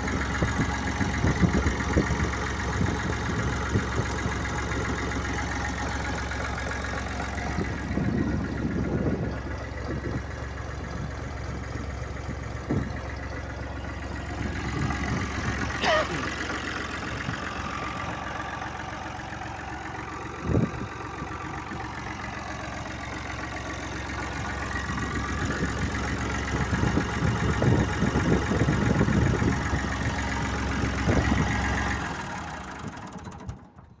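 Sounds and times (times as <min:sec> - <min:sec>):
diesel engine idling: 0:00.0 - 0:34.0.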